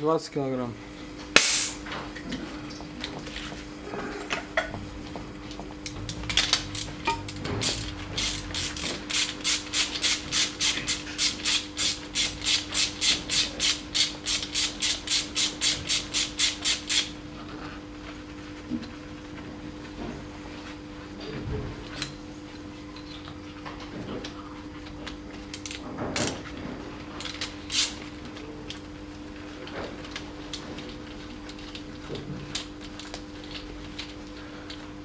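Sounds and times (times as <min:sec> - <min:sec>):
ratchet wrench clicking: 0:07.6 - 0:17.1.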